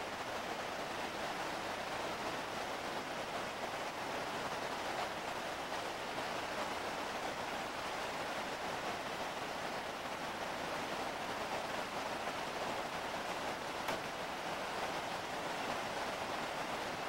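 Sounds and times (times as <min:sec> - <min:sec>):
faint click: 0:13.9 - 0:14.1.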